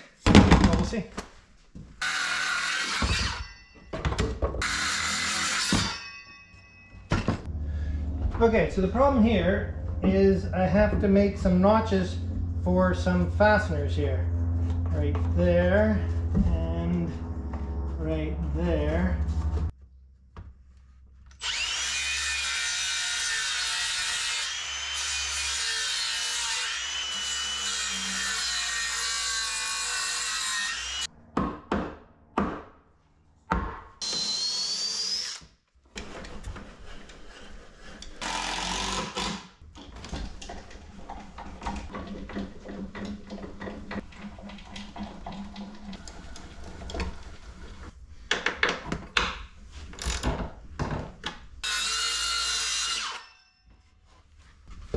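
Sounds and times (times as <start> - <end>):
power tool cutting wood: 2.0 - 3.6, 4.6 - 6.2, 21.4 - 31.1, 34.0 - 35.5, 38.2 - 39.6, 51.6 - 53.4
cordless drill bursts: 38.2 - 39.5.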